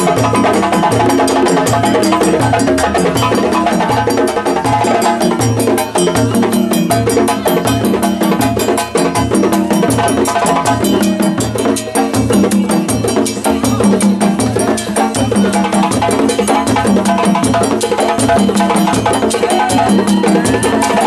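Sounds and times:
djembe drums: 0:00.0 - 0:21.0.

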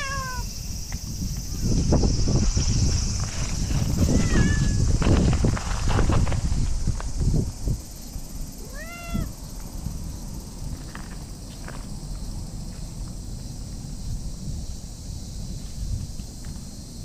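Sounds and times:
cat meowing: 0:00.0 - 0:00.5, 0:04.0 - 0:04.8, 0:08.6 - 0:09.4.

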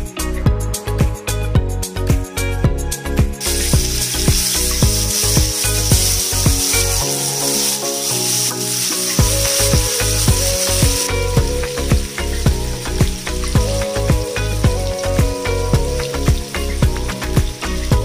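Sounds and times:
background music with steady beat: 0:00.0 - 0:18.0
chicken sizzling in hot oil: 0:03.4 - 0:18.0.

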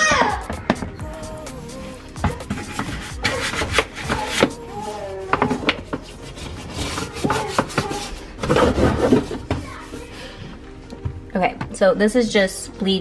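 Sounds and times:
brush scrubbing plastic: 0:02.2 - 0:10.1.

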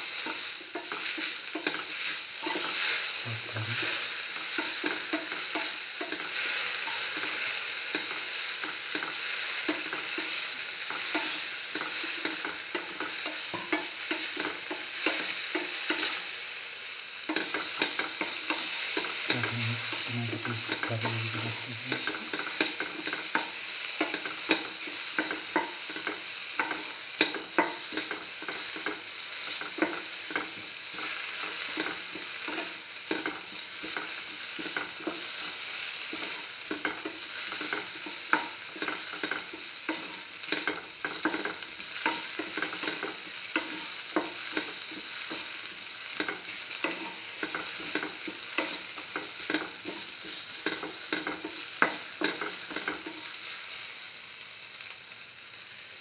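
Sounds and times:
food sizzling in hot oil: 0:00.0 - 0:56.0
spatula scraping and tapping pan: 0:10.9 - 0:16.1, 0:22.0 - 0:35.3, 0:36.1 - 0:45.5, 0:46.2 - 0:53.4.

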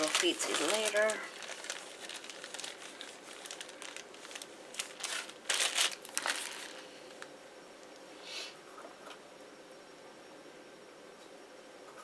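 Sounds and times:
plastic bag crinkling: 0:00.0 - 0:07.3.

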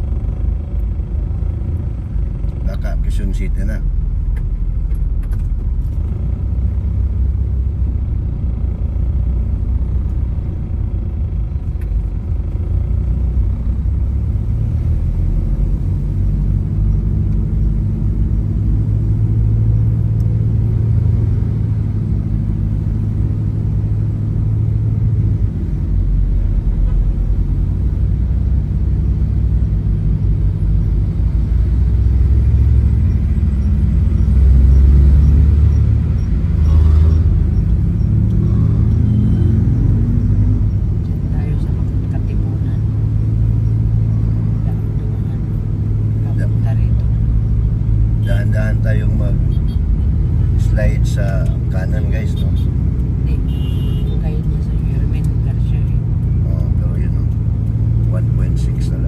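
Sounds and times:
car engine and road noise: 0:00.0 - 0:59.0.

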